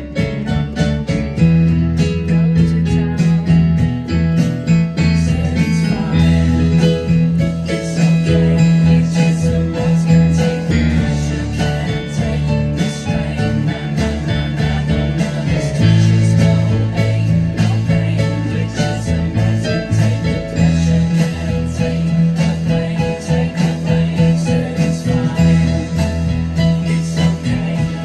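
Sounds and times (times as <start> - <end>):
synthesizer keyboard playing: 0.0 - 28.0.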